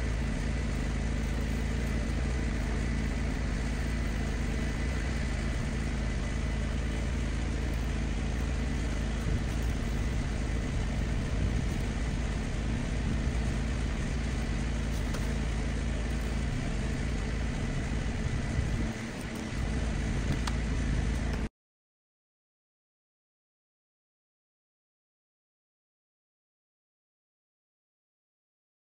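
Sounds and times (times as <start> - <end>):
pressure washer engine droning: 0.0 - 21.5.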